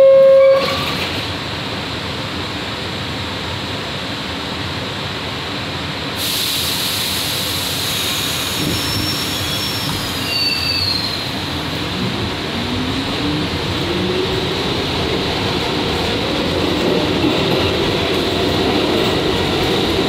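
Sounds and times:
subway car rumble and hiss: 0.0 - 20.0
faint high wheel squeals: 8.6 - 11.4.

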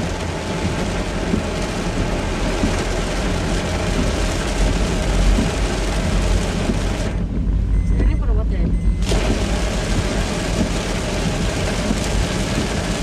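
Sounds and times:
heavy rain on car roof: 0.0 - 13.0.

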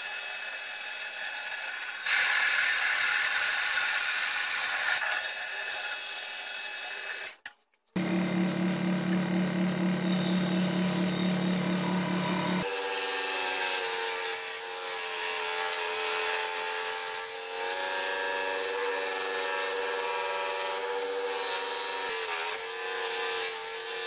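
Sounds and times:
scroll saw humming: 8.0 - 12.8.

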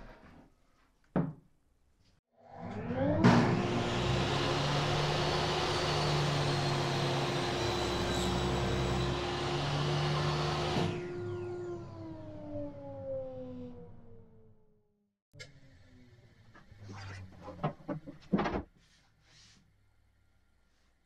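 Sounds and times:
table saw whine: 2.4 - 13.6.

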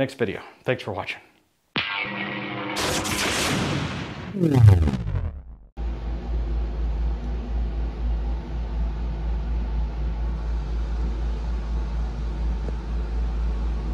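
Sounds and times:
low rumble: 4.3 - 5.8.

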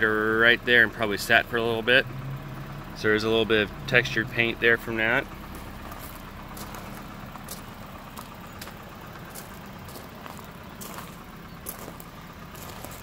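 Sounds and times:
low hum: 0.0 - 13.0
footsteps on gravel: 5.3 - 13.0.

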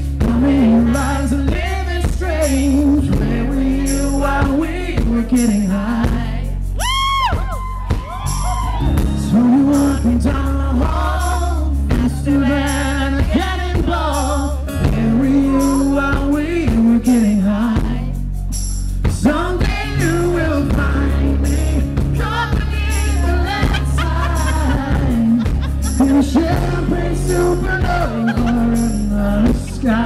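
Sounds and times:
man singing: 0.0 - 6.8, 9.0 - 30.0
strummed acoustic guitars: 8.9 - 30.0.

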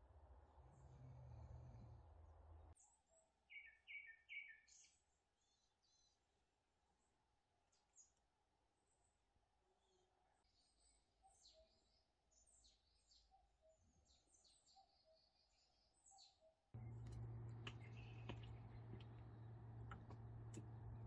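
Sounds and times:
wild birds chirping: 10.4 - 21.0.

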